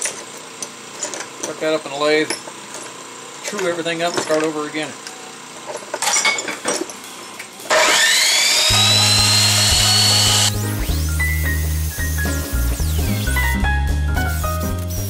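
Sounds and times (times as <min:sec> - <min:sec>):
steel parts clanking: 0:05.6 - 0:07.5
chop saw cutting steel: 0:07.7 - 0:12.3
background music with bass line: 0:08.7 - 0:15.0.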